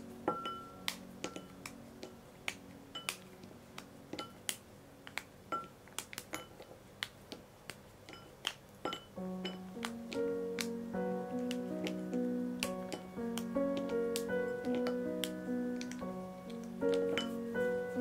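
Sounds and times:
music: 0.0s - 6.2s, 9.1s - 18.0s
chocolate snapping: 0.4s - 17.4s
chocolate clinking in ceramic bowl: 8.1s - 9.6s, 16.9s - 17.4s.

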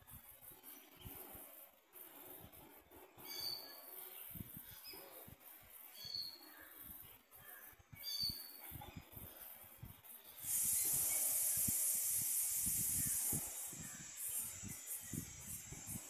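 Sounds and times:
bird chirp: 0.0s - 16.0s
wind buffeting microphone: 4.1s - 6.2s, 7.8s - 16.0s
loud high-pitched hiss: 10.2s - 16.0s.

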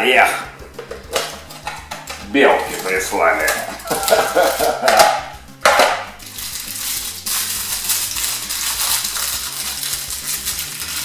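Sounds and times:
candy wrapper crinkling: 2.6s - 4.8s, 6.2s - 11.0s
candy box rustling: 2.6s - 4.9s, 6.2s - 11.0s.

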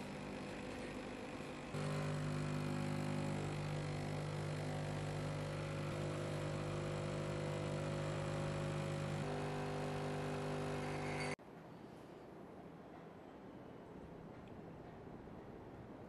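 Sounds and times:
espresso machine pump humming: 0.0s - 11.4s.

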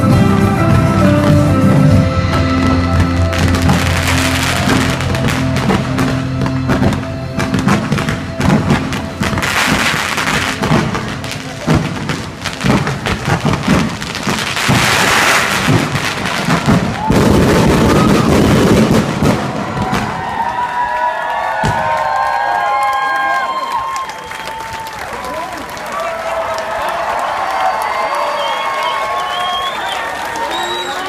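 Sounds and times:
music with held notes: 0.0s - 16.6s
fireworks crackling: 1.0s - 20.9s
fireworks bangs and thuds: 2.4s - 20.4s, 21.6s - 22.0s.

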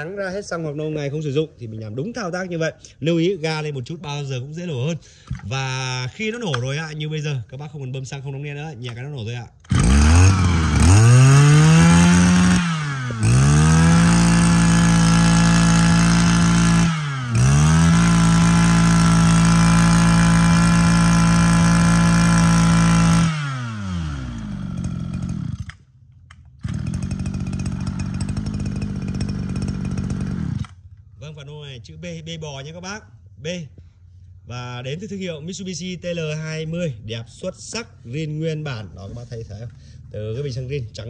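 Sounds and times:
brush cutter engine revving: 9.6s - 25.9s, 26.5s - 31.0s
engine running at low speed: 9.6s - 31.1s.

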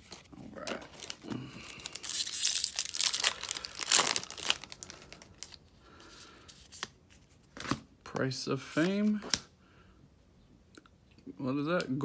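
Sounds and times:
foil wrapper tearing and crinkling: 0.6s - 5.6s.

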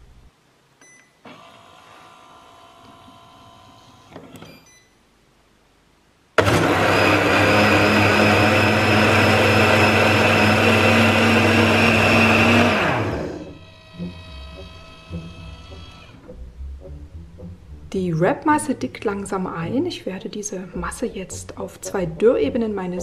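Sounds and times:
blender motor running: 6.4s - 16.1s.

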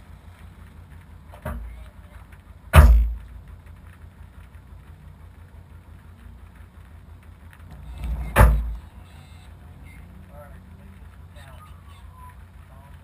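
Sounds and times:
car engine idling: 0.0s - 13.0s
sharp thumps: 2.7s - 3.7s, 7.6s - 9.0s.

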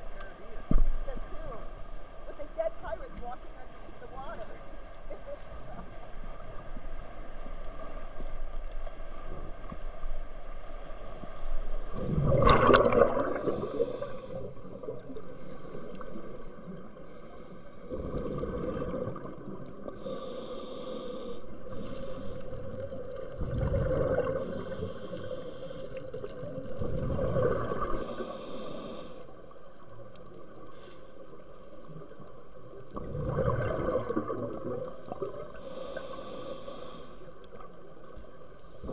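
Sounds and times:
exhaled bubbles rumbling: 11.7s - 20.2s, 21.5s - 28.4s, 32.0s - 35.6s
diver breathing through regulator: 12.3s - 14.7s, 19.9s - 22.9s, 23.8s - 26.3s, 27.3s - 29.4s, 35.5s - 37.4s
short inhale hiss: 13.3s - 14.5s, 20.0s - 22.6s, 24.4s - 26.0s, 28.0s - 29.3s, 35.6s - 37.4s.

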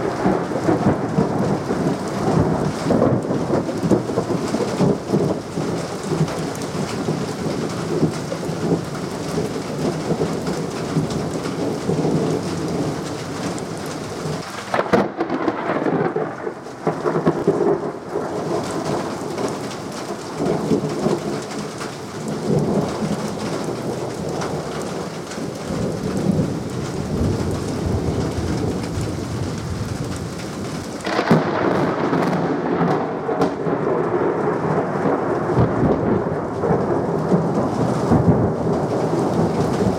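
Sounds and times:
rain falling: 0.0s - 39.9s
rolling thunder rumbles: 0.0s - 39.9s
sharp thunder crack: 14.7s - 19.6s, 31.0s - 39.9s.

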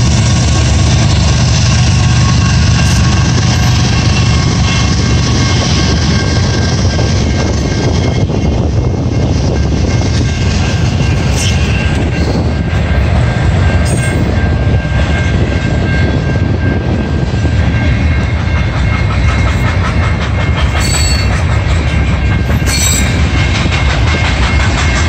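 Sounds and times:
freight train rumbling past: 0.0s - 25.0s
wheels clacking over rail joints: 17.7s - 25.0s
high wheel squeal: 20.7s - 21.4s, 22.5s - 23.5s.

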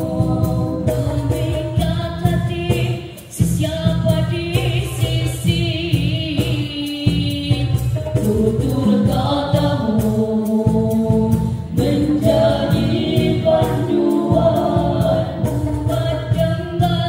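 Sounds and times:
boys singing in harmony: 0.0s - 2.0s, 8.1s - 17.0s
percussion beat: 0.0s - 17.0s.

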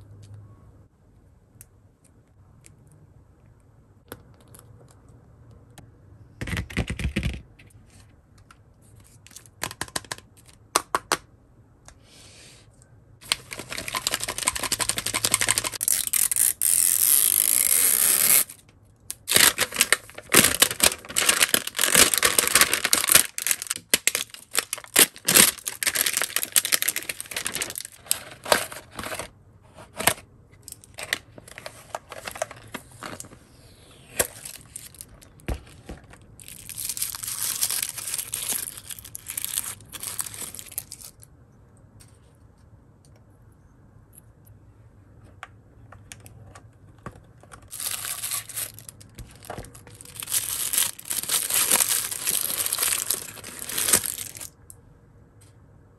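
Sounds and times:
plastic wrapper crinkling: 13.2s - 29.3s, 30.6s - 33.3s, 34.2s - 35.5s, 36.2s - 41.3s, 47.6s - 54.6s
plastic wrapper tearing: 13.2s - 29.3s, 34.2s - 35.3s, 36.4s - 41.2s, 47.7s - 54.6s.

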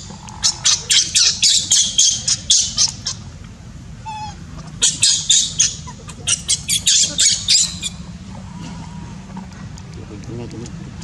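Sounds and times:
baby monkey screaming: 0.0s - 3.2s, 4.0s - 8.0s.

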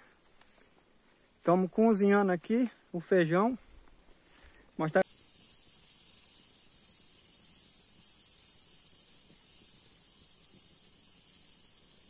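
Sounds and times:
pressure cooker hissing steam: 5.0s - 12.0s.

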